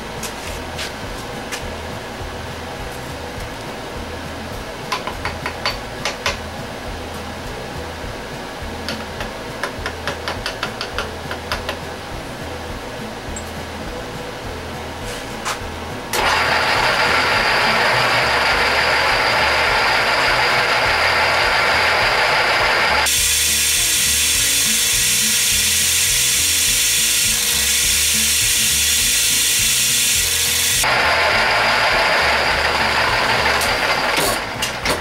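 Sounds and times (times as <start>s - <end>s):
drill press motor running: 16.1s - 35.0s
drill bit cutting metal: 16.2s - 34.5s.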